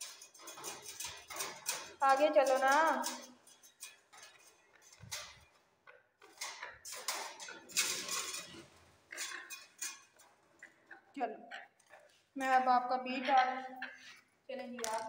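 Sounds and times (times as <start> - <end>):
wire cage clinking and rattling: 0.0 - 12.2.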